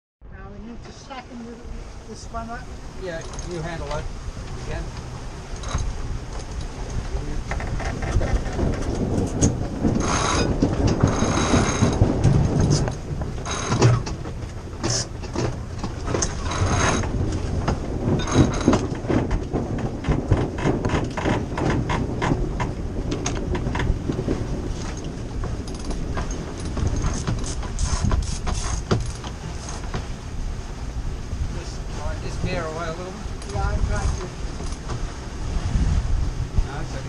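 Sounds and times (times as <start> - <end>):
rushes of noise: 0.3 - 37.0.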